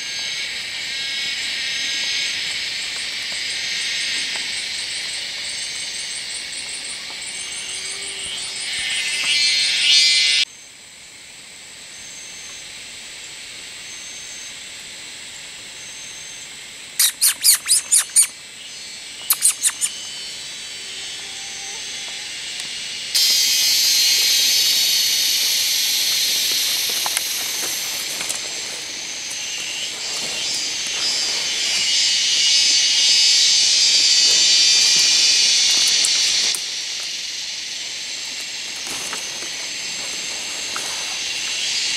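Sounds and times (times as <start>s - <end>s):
cicadas buzzing: 0.0s - 41.9s
loud insect trill: 0.0s - 41.9s
quick sharp animal calls: 17.0s - 18.3s, 19.2s - 20.0s.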